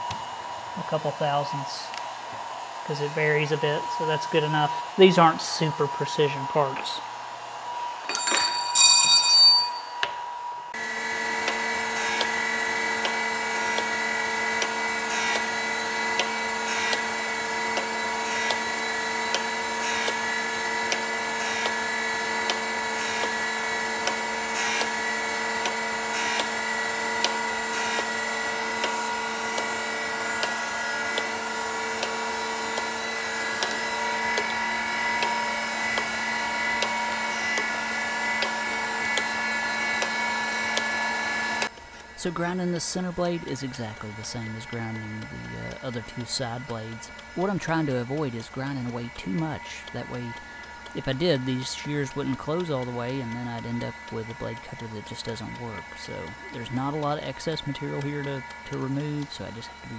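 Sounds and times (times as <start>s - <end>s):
machine hum: 0.0s - 59.9s
sharp metallic clinks: 8.1s - 10.0s
grinder wheel grinding steel: 8.1s - 10.2s.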